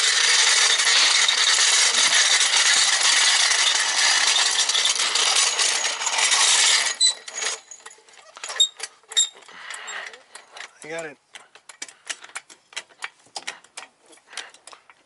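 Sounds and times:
floor jack rolling on bricks: 0.0 - 10.8.

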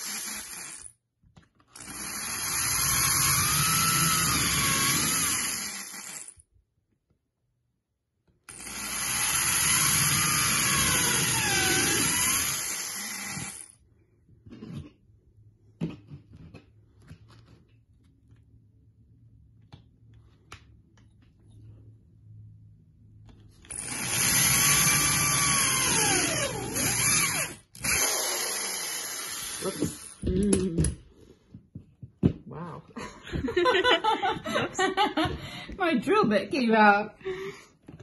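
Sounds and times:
electric drill whining: 0.0 - 0.9, 1.7 - 6.4, 8.5 - 13.8, 23.7 - 30.2.

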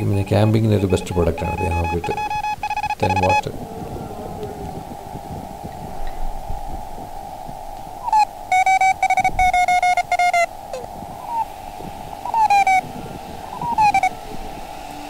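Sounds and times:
morse code tone: 0.0 - 3.6, 8.0 - 11.4, 12.3 - 12.9, 13.6 - 14.2
radio receiver hiss: 0.0 - 15.0
tones sliding down in pitch: 0.7 - 3.5, 12.3 - 12.8, 13.6 - 14.1.

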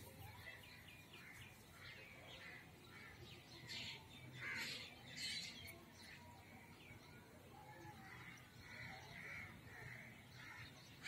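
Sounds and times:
small birds twittering: 0.0 - 11.0
crows cawing: 8.2 - 10.8.

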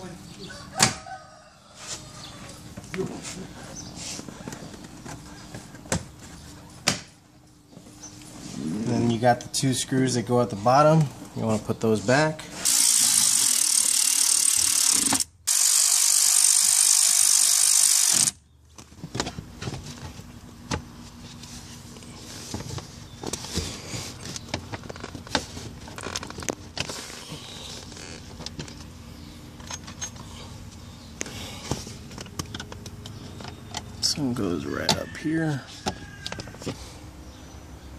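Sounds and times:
cordless ratchet whirring: 12.6 - 18.4.

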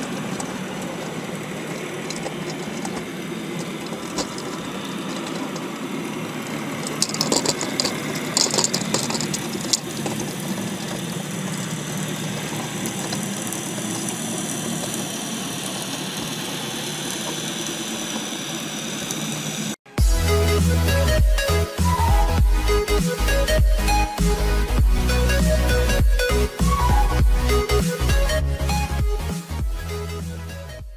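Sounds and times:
sharp clicks and crackles: 0.0 - 5.8, 6.8 - 19.2
electronic music with heavy beat: 20.0 - 30.9.

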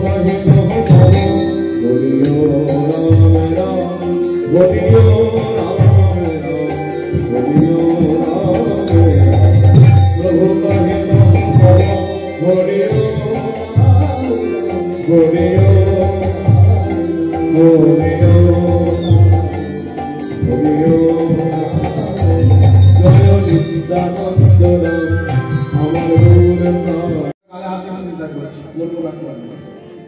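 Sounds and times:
drum beat: 4.6 - 12.1, 12.9 - 27.3.

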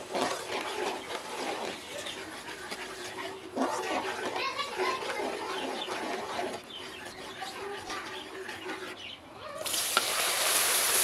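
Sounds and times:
loud sizzling hiss: 9.7 - 11.0.

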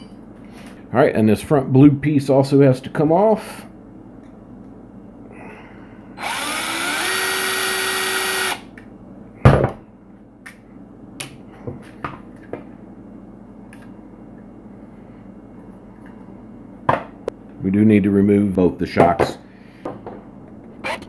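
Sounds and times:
cordless drill spinning: 6.2 - 8.7.

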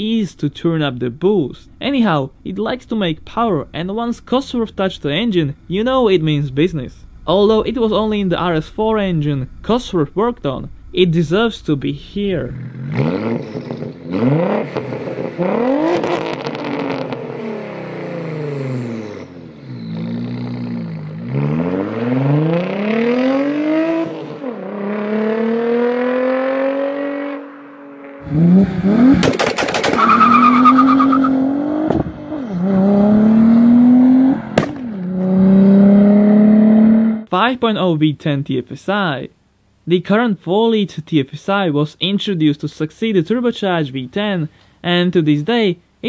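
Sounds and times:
high turbo whine: 0.0 - 37.3
exhaust cracks: 0.9 - 23.4, 26.0 - 36.9
car engine accelerating: 1.7 - 37.3.

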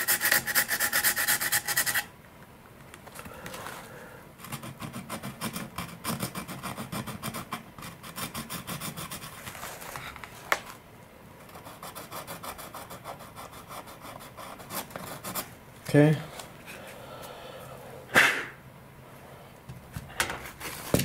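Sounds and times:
needle file rasping: 0.0 - 2.1.

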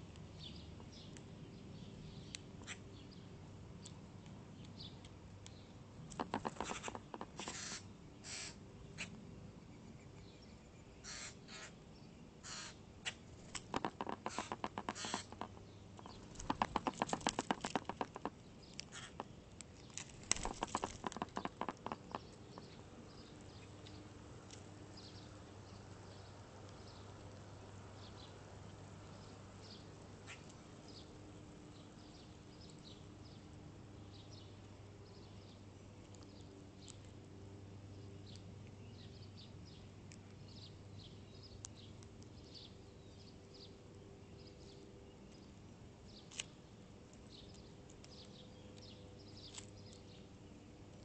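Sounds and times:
faint low hum: 0.0 - 51.0
bird clicking and rasping: 3.8 - 9.2, 12.5 - 30.6, 46.1 - 50.2.

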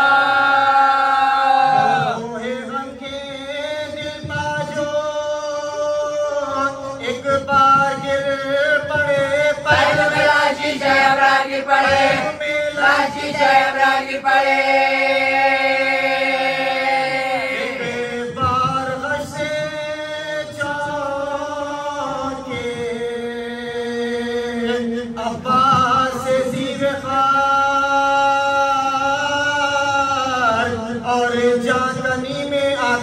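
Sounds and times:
group of voices chanting: 0.0 - 2.2, 9.8 - 18.2.

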